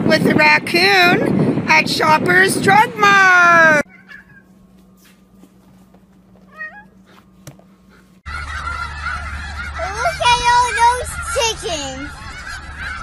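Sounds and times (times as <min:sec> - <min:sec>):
wind noise on microphone: 0:00.0 - 0:03.9, 0:09.7 - 0:13.0
cat meowing: 0:03.9 - 0:04.5, 0:06.5 - 0:07.0
geese honking: 0:07.9 - 0:13.0.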